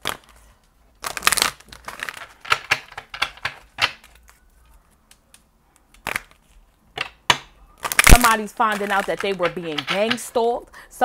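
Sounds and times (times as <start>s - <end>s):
cards being shuffled: 1.0s - 6.6s, 7.8s - 10.2s.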